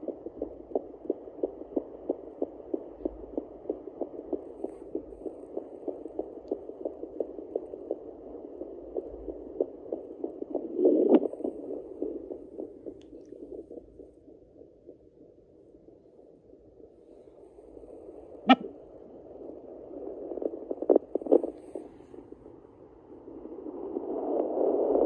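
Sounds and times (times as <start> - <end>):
doppler whooshing heartbeat: 0.0 - 13.0
probe scraping across skin: 0.0 - 13.6, 17.7 - 22.2.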